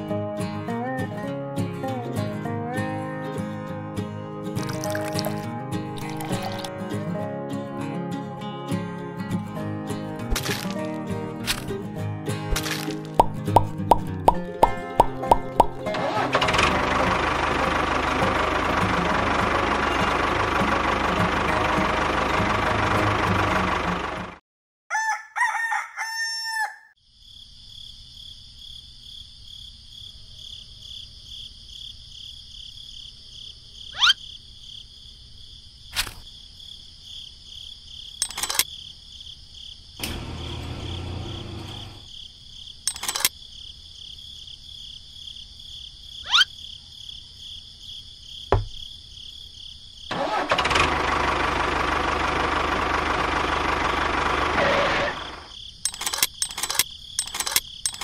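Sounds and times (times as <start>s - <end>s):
engine running: 4.6s - 6.8s, 12.5s - 24.4s, 38.2s - 38.6s, 40.0s - 42.1s, 50.1s - 58.0s
rooster crowing: 24.9s - 27.0s
sharp clicks: 38.2s - 38.7s, 42.9s - 43.3s, 55.8s - 58.0s.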